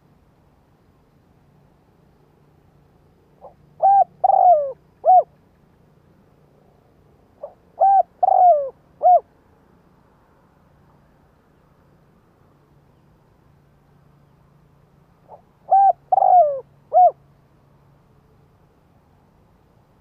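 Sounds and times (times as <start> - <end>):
dove cooing: 3.4 - 5.4, 7.4 - 9.3, 15.3 - 17.2.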